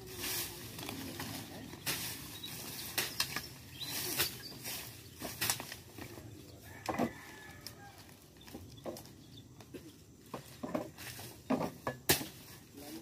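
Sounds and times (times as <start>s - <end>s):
dry vegetation crackling: 0.0s - 11.5s
machete chopping brush: 1.8s - 4.5s, 12.1s - 12.5s.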